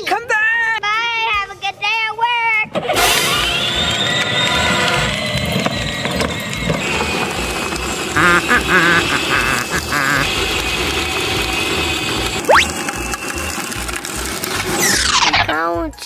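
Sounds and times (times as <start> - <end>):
short warbling sounds: 12.5 - 12.8.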